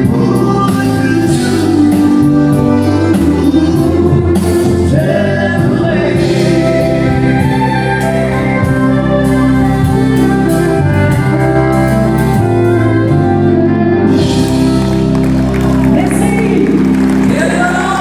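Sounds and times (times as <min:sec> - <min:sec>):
woman and man singing: 0:00.0 - 0:07.3, 0:17.3 - 0:18.0
band with drums: 0:00.0 - 0:18.0.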